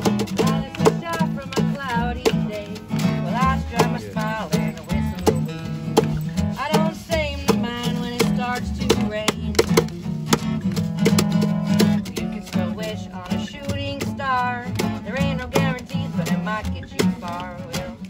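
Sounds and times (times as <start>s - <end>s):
taps on wooden box: 0.0s - 6.8s, 7.4s - 12.2s
acoustic guitars strumming: 0.0s - 18.0s.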